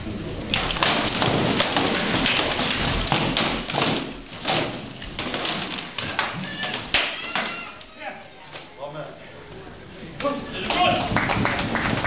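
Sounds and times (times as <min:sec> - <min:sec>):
sword blows on shields: 0:00.6 - 0:07.6.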